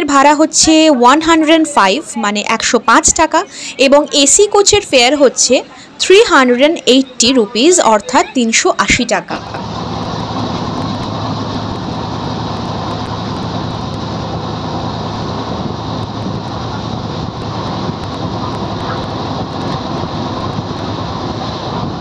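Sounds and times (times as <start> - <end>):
low steady hum: 0.0 - 22.0
train coach running noise: 0.0 - 22.0.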